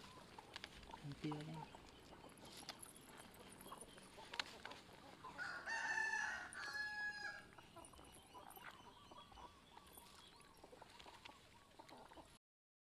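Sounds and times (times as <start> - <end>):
rooster crowing: 5.4 - 7.4.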